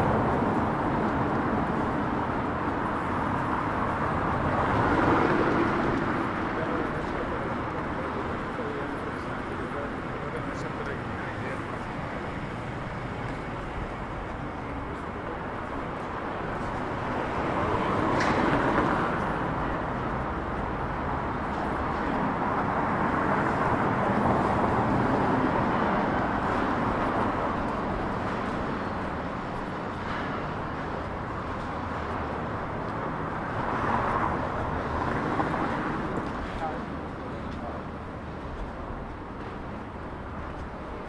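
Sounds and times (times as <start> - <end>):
vehicles passing: 0.0 - 41.0.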